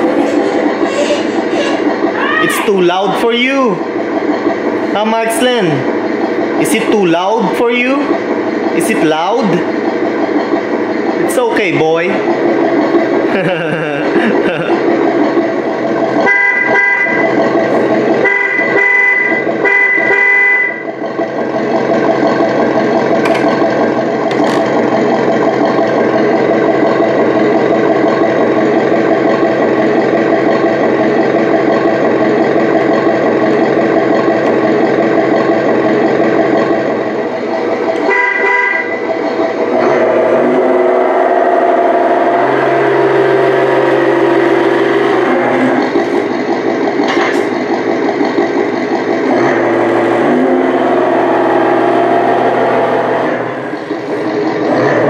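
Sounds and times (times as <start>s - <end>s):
simulated truck engine running: 0.0s - 55.0s
truck horn honks: 16.2s - 17.3s, 18.1s - 20.9s, 38.0s - 39.0s.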